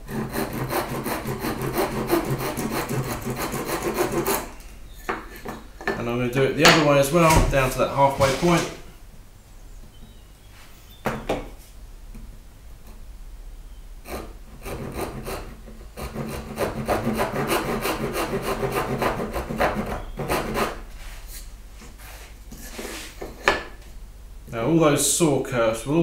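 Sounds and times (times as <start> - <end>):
hand saw rasping through wood: 0.0 - 4.5, 8.0 - 8.8, 14.0 - 20.8.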